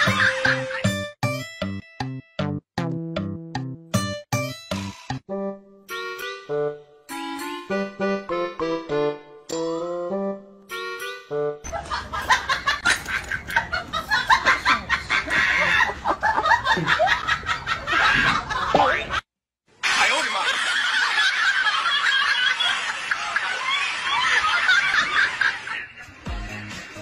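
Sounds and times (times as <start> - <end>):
snickering laughter: 11.7 - 19.1, 20.4 - 26.0.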